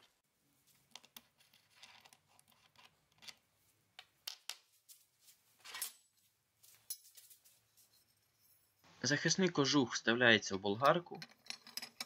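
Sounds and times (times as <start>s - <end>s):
small metal parts clicking: 10.9s - 12.0s.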